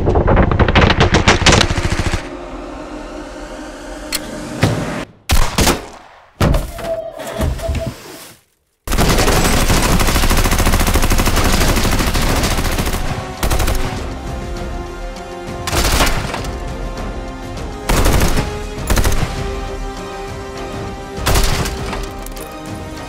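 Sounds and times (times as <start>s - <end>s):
rapid gunfire: 0.0s - 2.3s, 8.9s - 14.1s, 15.7s - 16.4s, 17.9s - 19.5s, 21.2s - 21.8s
film music: 0.0s - 7.6s, 8.9s - 23.0s.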